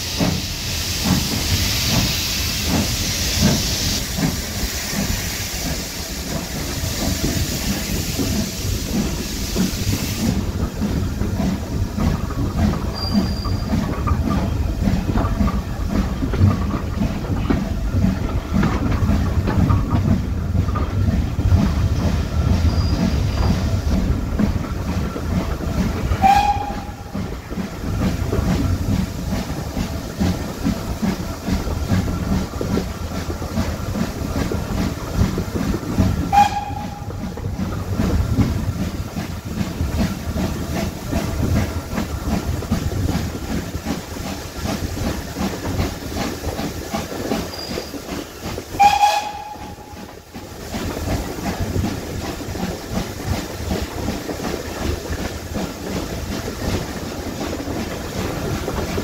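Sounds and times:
steam locomotive exhaust: 0.0 - 59.0
short steam whistle notes: 26.2 - 27.0, 36.3 - 37.1, 48.8 - 50.0.

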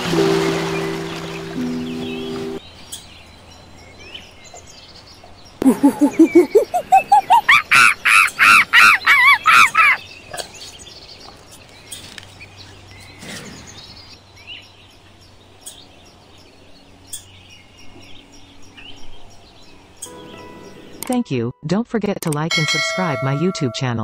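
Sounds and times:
faint outdoor ambience: 0.0 - 24.0
monkey hooting and calling: 5.6 - 10.0.

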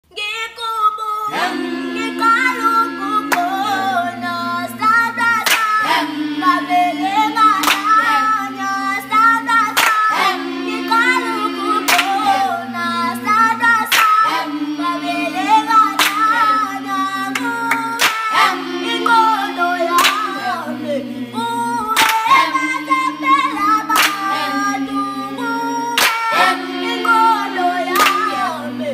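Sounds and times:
group singing a cappella: 0.5 - 28.9
hand claps: 2.6 - 3.8, 4.9 - 6.7, 7.4 - 8.4, 9.0 - 13.0, 13.6 - 20.7, 21.9 - 25.0, 25.9 - 28.7.

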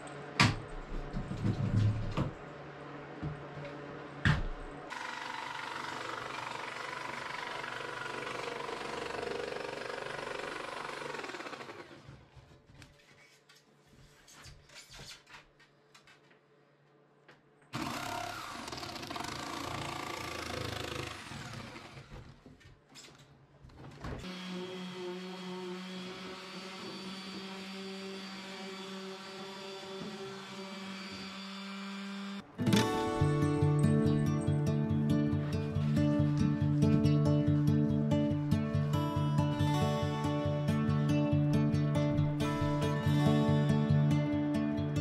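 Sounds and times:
orbital sander running: 4.9 - 12.0, 24.3 - 32.4
jigsaw cutting board: 4.9 - 12.5, 17.7 - 22.5, 24.2 - 32.9.

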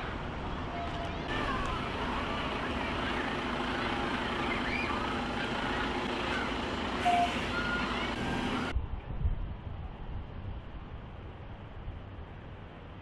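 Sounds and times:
birds chirping: 0.5 - 8.7
diesel truck engine running: 1.3 - 8.8.

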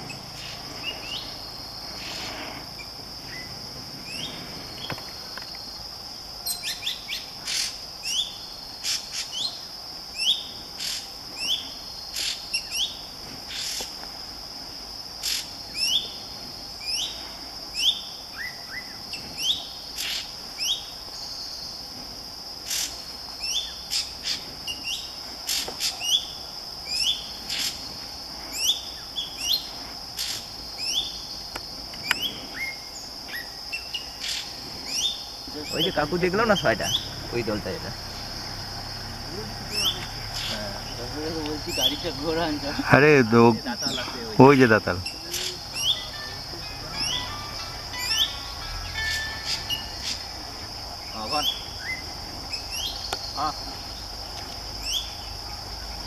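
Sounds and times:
high-pitched insect drone: 0.0 - 56.0
rising bird chirps: 30.3 - 31.4, 32.0 - 56.0.

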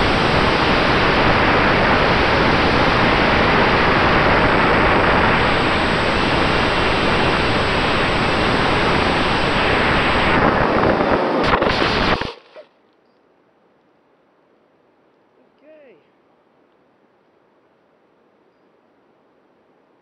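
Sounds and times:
airflow and motor noise: 0.0 - 12.7
faint steady whine: 0.0 - 20.0.

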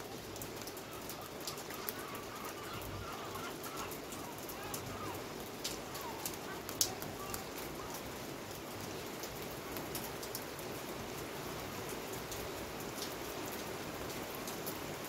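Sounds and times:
bird calling: 0.0 - 9.2
heavy rain falling: 0.0 - 15.0.

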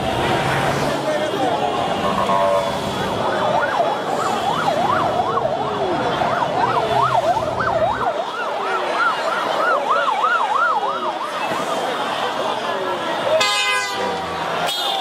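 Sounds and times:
vehicle siren yelping: 1.6 - 13.5.

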